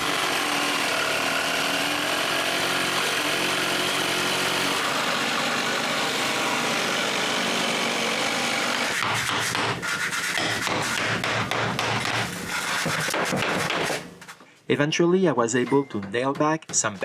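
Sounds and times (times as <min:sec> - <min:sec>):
power tool motor whining: 0:00.0 - 0:09.0
sharp knocks: 0:08.8 - 0:14.0.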